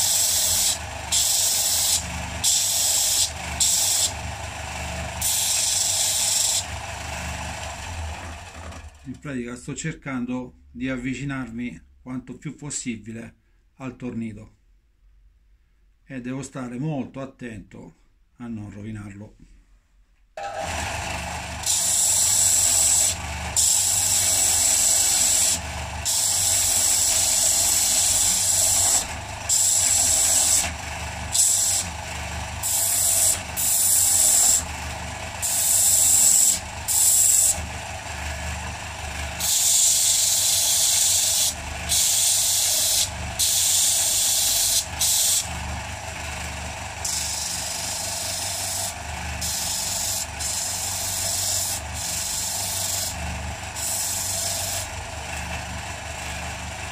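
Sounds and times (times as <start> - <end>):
sanding disc running: 0.0 - 9.0, 20.4 - 56.9
wood scraping on sanding disc: 21.6 - 32.0, 32.6 - 45.6, 47.0 - 54.9.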